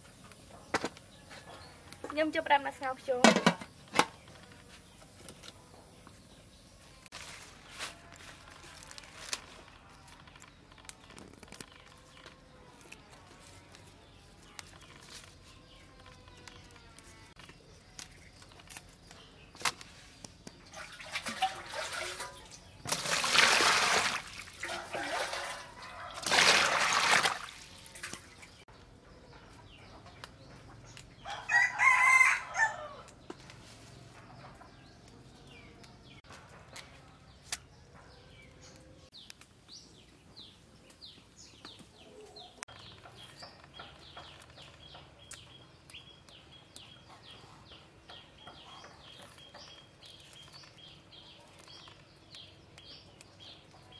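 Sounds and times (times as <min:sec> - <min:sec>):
water splashing into basin: 0:20.7 - 0:28.4
rooster crowing: 0:31.3 - 0:33.1.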